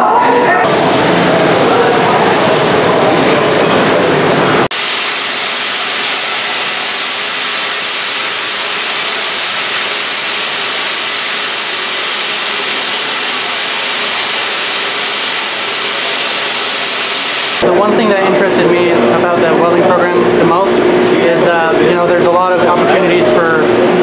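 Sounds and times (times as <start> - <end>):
cutting torch hissing: 4.7 - 17.6.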